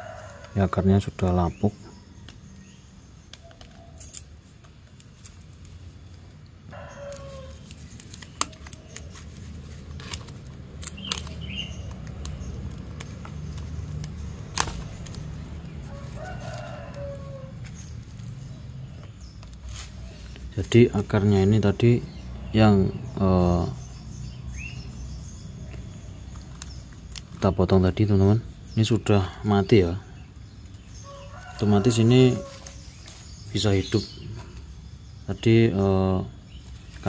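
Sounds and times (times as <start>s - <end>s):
rooster crowing: 0.0s - 0.8s, 6.7s - 7.7s, 15.8s - 17.9s, 31.0s - 32.9s
sharp clicks: 9.8s - 15.5s.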